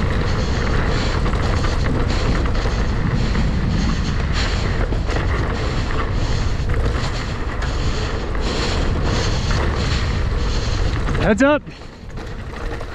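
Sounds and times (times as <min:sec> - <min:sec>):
low rumble: 0:00.0 - 0:12.9
wind rushing over microphone: 0:00.0 - 0:12.9.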